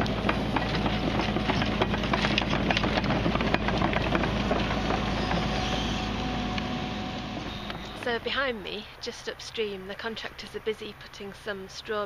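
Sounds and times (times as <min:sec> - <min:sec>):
clattering clicks and knocks: 0:00.0 - 0:08.2
excavator engine hum: 0:00.0 - 0:12.0.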